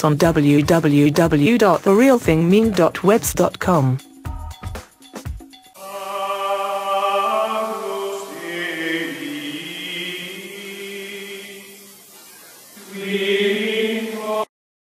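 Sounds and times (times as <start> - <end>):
choir holding sustained notes: 5.8 - 14.5.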